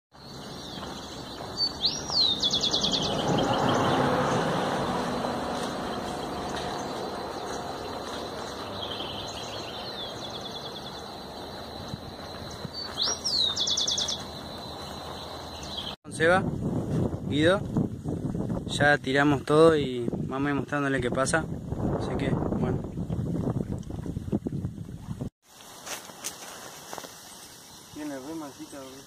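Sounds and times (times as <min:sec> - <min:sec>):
bird singing: 0:00.1 - 0:16.0.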